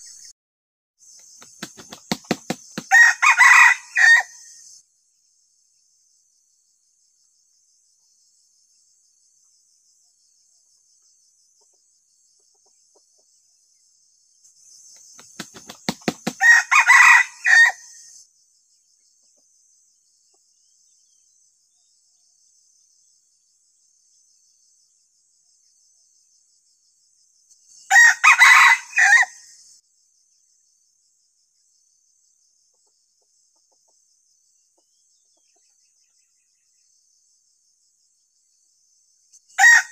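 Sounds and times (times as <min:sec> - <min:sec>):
wing flaps: 0:01.4 - 0:02.9, 0:15.1 - 0:16.4
rooster crowing: 0:02.7 - 0:04.5, 0:16.2 - 0:18.0, 0:27.9 - 0:29.5, 0:39.6 - 0:39.9.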